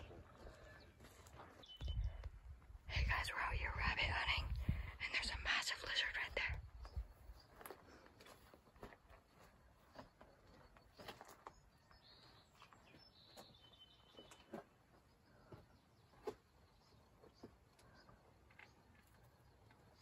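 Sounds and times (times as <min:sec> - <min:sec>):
faint high chirp: 0:01.5 - 0:02.3.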